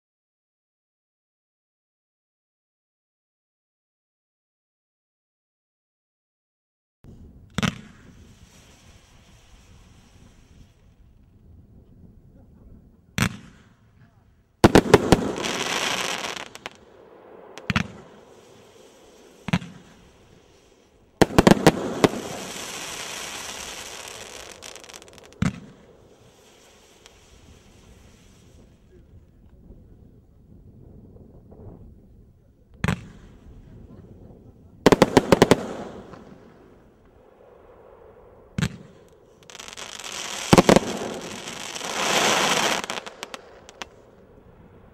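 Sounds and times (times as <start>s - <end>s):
firework hissing: 7.6s - 11.0s, 14.6s - 28.9s, 39.0s - 44.5s
firework shells bursting: 14.6s - 28.7s, 34.9s - 37.2s, 38.6s - 44.2s.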